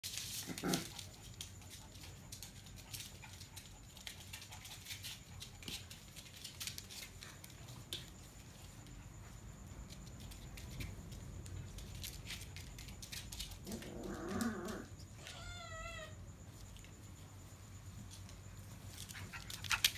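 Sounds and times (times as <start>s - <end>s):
puppy paws and claws scuffling: 0.0s - 15.6s, 17.8s - 19.9s.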